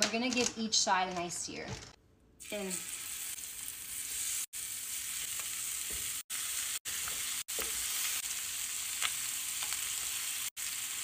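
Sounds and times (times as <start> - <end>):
chicken sizzling in oil: 2.4 - 11.0.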